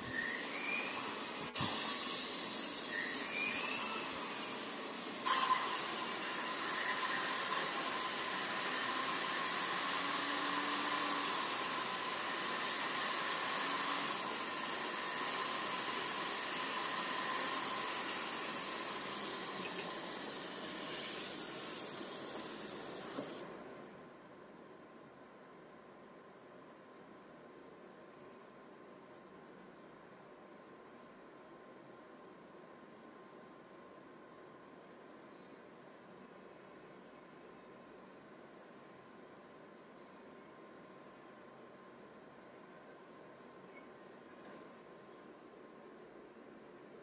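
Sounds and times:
rotary tool hissing with whine: 0.0 - 23.4.

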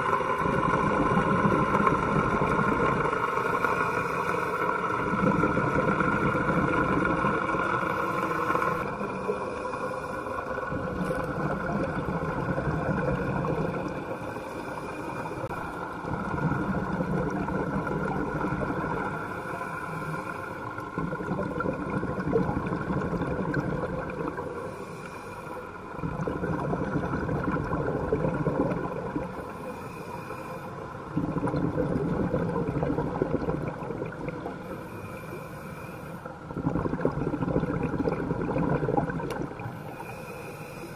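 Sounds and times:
exhaled bubbles gurgling underwater: 0.0 - 40.9
faint steady hum: 0.0 - 40.9
regulator inhale hiss: 2.9 - 5.2, 7.0 - 11.7, 14.0 - 16.1, 19.0 - 21.0, 24.4 - 25.9, 29.2 - 31.1, 34.4 - 36.5, 39.6 - 40.9.

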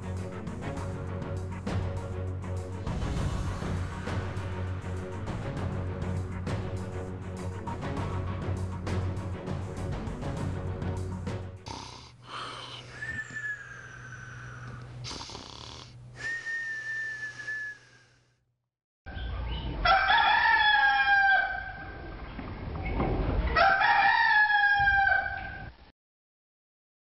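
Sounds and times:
steady low hum: 11.6 - 18.2.

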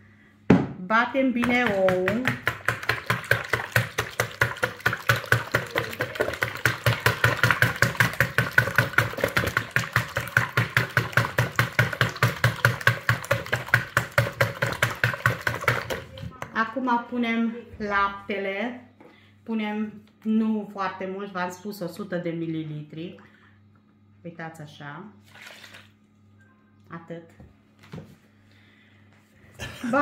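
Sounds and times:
whisk beating eggs in a bowl: 1.4 - 16.3.

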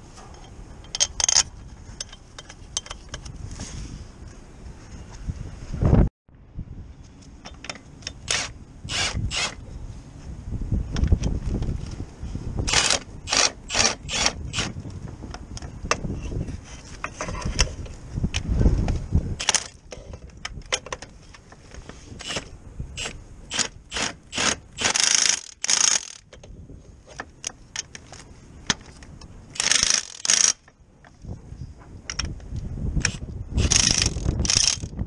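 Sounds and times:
socket ratchet clicking: 23.0 - 26.4, 29.6 - 30.7, 33.0 - 35.0.

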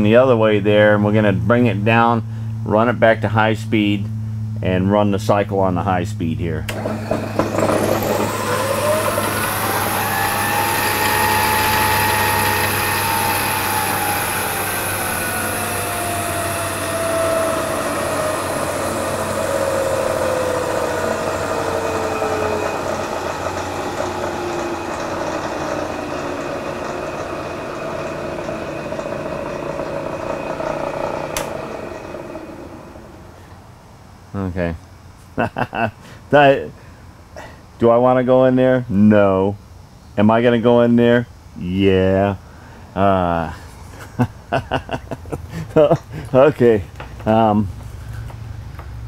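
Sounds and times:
steady low hum: 0.0 - 49.0
milling machine motor whine: 6.6 - 33.7.

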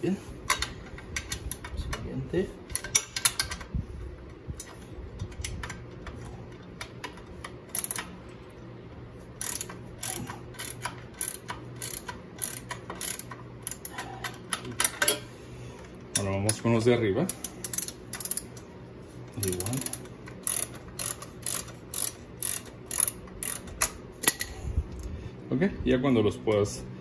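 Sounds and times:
hand ratchet clicking: 2.7 - 3.7, 6.8 - 8.1, 9.4 - 15.2, 17.2 - 18.6, 19.4 - 24.5.

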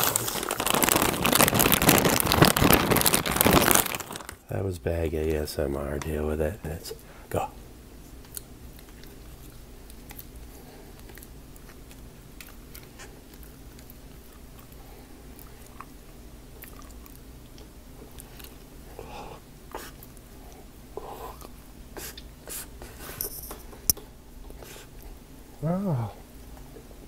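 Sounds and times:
man chewing crunchy food: 0.0 - 4.4, 8.0 - 23.2.

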